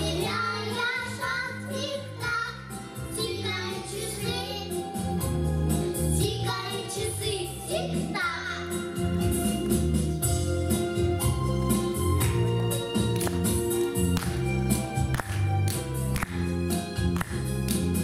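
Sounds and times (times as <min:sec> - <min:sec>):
children singing together: 0:00.0 - 0:04.8
instrumental accompaniment: 0:00.0 - 0:18.0.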